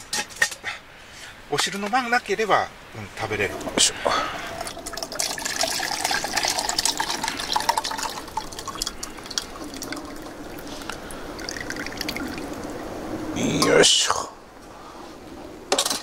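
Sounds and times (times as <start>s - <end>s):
broth pouring into pot: 3.5s - 12.8s.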